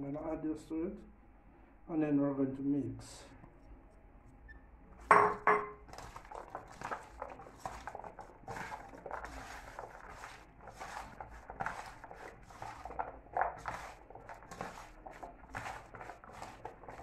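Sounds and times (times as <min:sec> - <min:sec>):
hands squishing meat in bowl: 0:05.8 - 0:17.0.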